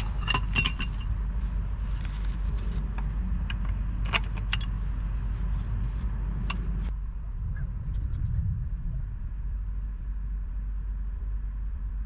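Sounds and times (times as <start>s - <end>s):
metallic clinks of pipe wrench: 0.0s - 1.1s
steady low rumble: 0.0s - 12.0s.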